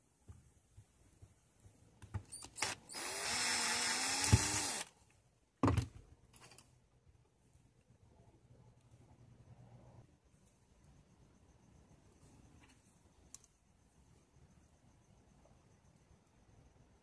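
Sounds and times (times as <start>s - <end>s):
power drill motor whine: 2.3s - 4.9s.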